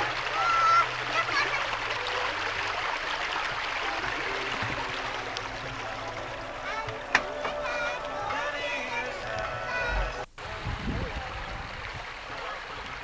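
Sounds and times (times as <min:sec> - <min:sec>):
stream running over rocks: 0:00.0 - 0:13.0.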